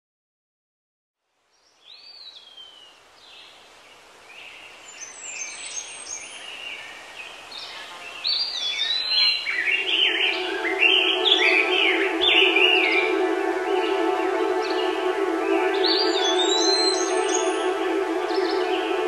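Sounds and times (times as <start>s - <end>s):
birds chirping and whistling: 7.6s - 19.0s
steady held musical tone: 8.8s - 19.0s.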